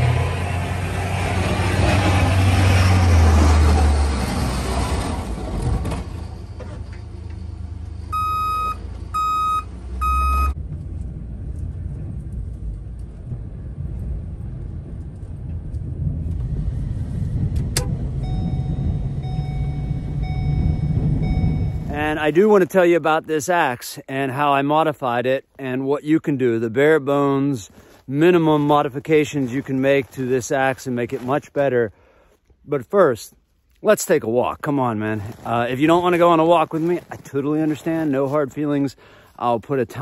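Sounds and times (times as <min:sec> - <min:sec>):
plow blade pushing snow: 0:00.0 - 0:22.6, 0:34.2 - 0:40.0
snowplow engine rumble: 0:00.0 - 0:23.7, 0:25.0 - 0:32.3, 0:33.8 - 0:40.0
vehicle rumble: 0:00.0 - 0:23.7, 0:32.4 - 0:40.0
electronic beeps: 0:08.1 - 0:10.6, 0:18.2 - 0:21.9.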